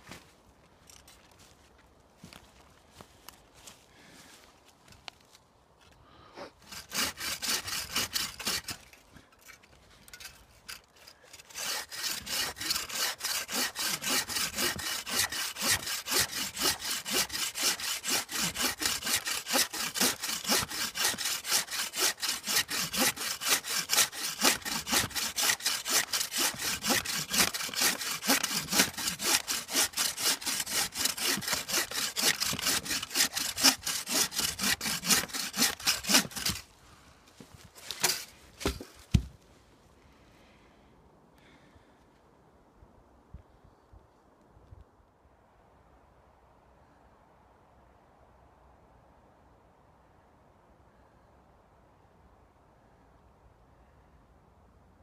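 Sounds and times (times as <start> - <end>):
bow saw cutting log: 6.6 - 36.7, 37.8 - 39.3.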